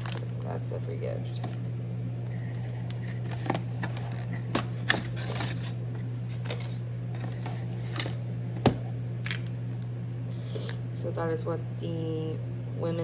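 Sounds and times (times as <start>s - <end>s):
steady low hum: 0.0s - 13.0s
cardboard box rustling: 2.3s - 8.7s.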